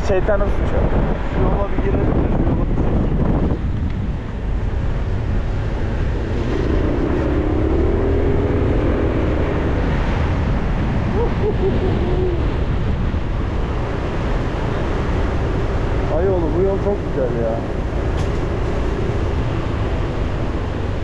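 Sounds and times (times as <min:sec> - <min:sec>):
car road and wind rumble: 0:00.0 - 0:21.0.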